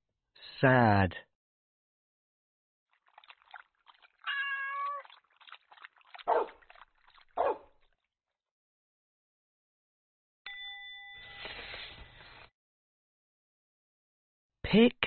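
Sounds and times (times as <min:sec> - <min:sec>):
cat meowing: 0:04.2 - 0:05.1.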